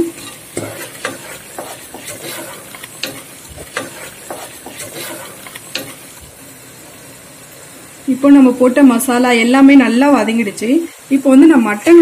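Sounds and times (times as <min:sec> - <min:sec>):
frying hiss: 0:00.0 - 0:12.0
spatula scraping a metal pot: 0:00.1 - 0:06.4.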